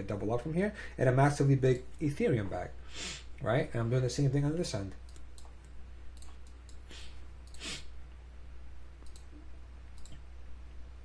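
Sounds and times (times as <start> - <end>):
low electrical hum: 0.0 - 11.0
computer mouse clicking: 5.0 - 7.7, 9.0 - 10.2.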